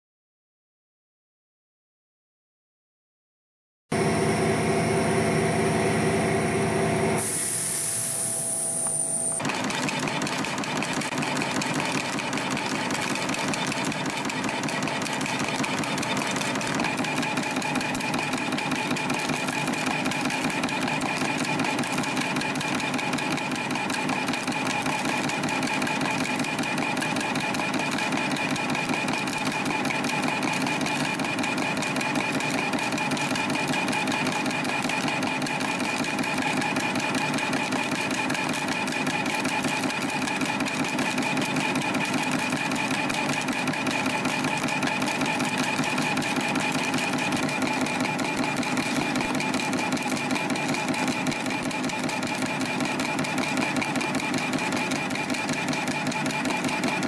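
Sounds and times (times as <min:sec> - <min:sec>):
machine humming: 0:03.9 - 0:11.2.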